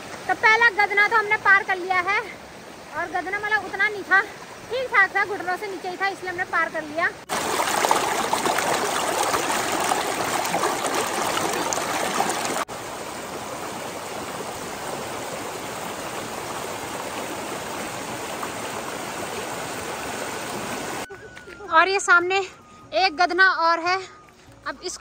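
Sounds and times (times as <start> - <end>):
mountain stream rushing: 0.0 - 21.1.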